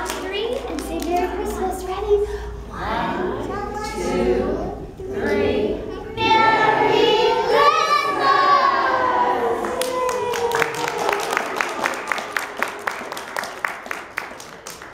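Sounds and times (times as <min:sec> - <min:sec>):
group clapping in rhythm: 0:00.0 - 0:01.7, 0:09.5 - 0:14.9
women and children singing: 0:00.0 - 0:10.0.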